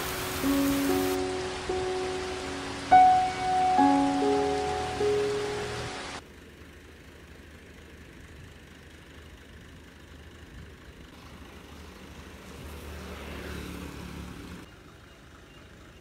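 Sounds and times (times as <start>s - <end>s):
tractor engine idling: 0.0s - 12.6s.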